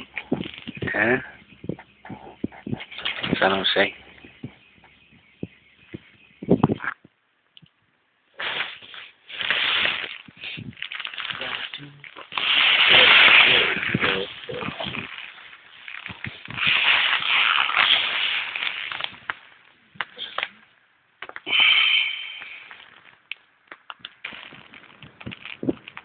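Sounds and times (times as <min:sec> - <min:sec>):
crackling rustling on microphone: 0:00.0 - 0:21.5, 0:22.2 - 0:26.0.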